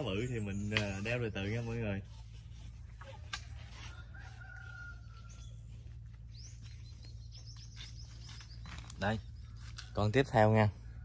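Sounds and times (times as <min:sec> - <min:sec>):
steady low hum: 0:00.0 - 0:11.0
distant rooster crowing: 0:03.5 - 0:06.0
small bird chirping: 0:03.9 - 0:10.0.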